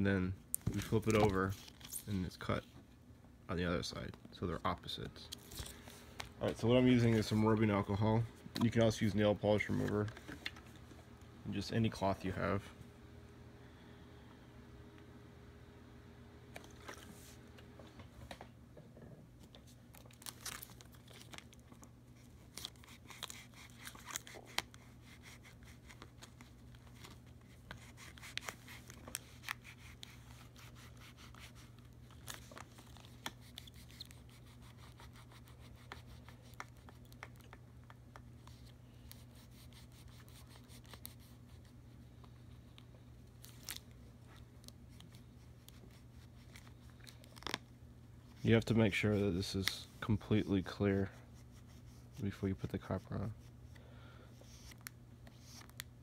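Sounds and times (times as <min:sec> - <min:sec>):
low steady hum: 0:00.0 - 0:56.0
cloth wiping plastic: 0:06.4 - 0:10.3, 0:22.2 - 0:37.4
plastic film crinkling: 0:19.9 - 0:35.1, 0:43.3 - 0:47.7.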